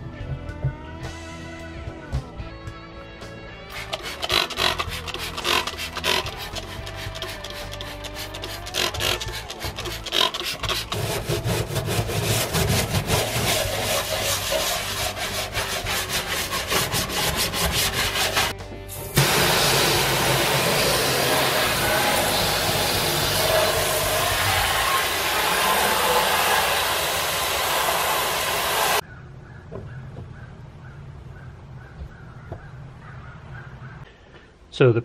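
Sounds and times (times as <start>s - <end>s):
hose spray hissing: 3.7s - 11.0s, 12.5s - 29.0s
stiff brush scrubbing metal: 3.7s - 29.0s.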